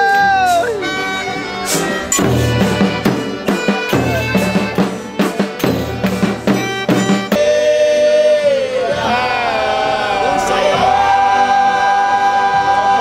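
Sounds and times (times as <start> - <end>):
drum beating steady rhythm: 0.0 - 7.7
sustained instrument notes: 0.6 - 13.0
voices singing held note: 7.3 - 13.0.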